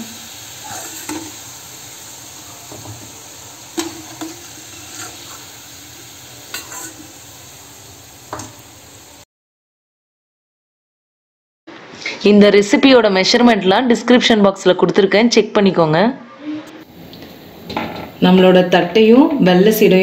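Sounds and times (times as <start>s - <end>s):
rice balls sizzling in hot oil: 0.0s - 9.3s
metal spoon stirring: 3.8s - 5.5s, 6.5s - 7.1s.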